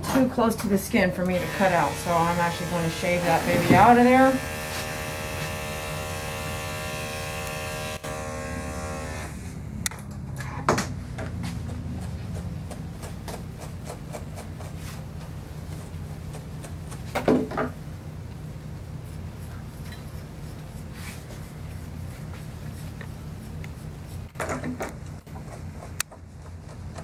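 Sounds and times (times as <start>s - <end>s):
electric dog clippers buzzing: 1.2s - 9.6s.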